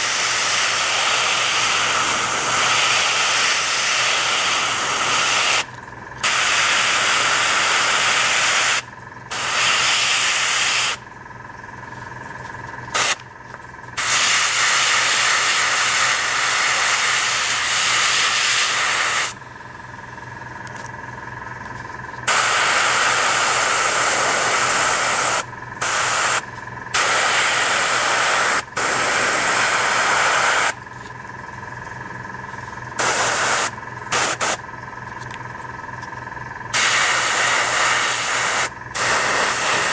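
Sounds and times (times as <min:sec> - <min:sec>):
airbrush spraying in hissing bursts: 0:00.0 - 0:11.0, 0:13.0 - 0:13.2, 0:14.0 - 0:19.4, 0:22.3 - 0:26.4, 0:27.0 - 0:30.8, 0:33.0 - 0:34.6, 0:36.8 - 0:39.9
steady hum: 0:00.0 - 0:39.9.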